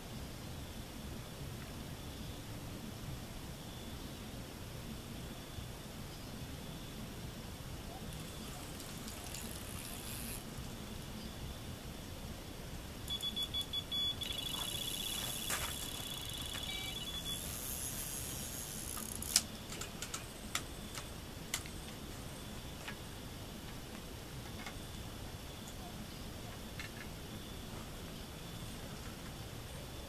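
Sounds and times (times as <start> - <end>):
continuous high tone: 12.8 - 23.5
electronic bite alarm beeping: 13.1 - 18.4.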